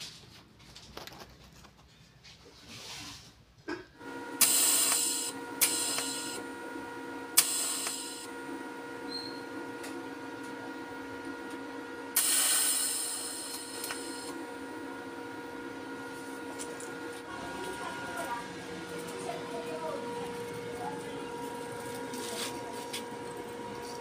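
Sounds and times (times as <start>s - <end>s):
steady electric hum: 3.8s - 24.0s
welding arc hissing and crackling: 4.4s - 6.4s, 7.3s - 8.3s, 12.1s - 14.4s.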